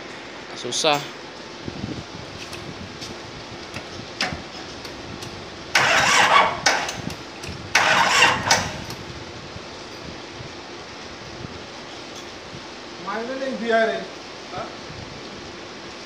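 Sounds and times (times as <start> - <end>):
diesel engine cranking: 3.5 - 9.2.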